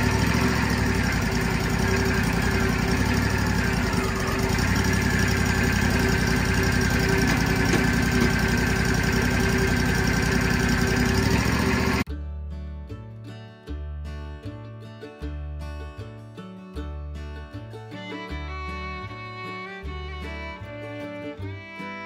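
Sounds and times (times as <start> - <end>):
sawmill engine running: 0.0 - 12.1, 18.0 - 22.0.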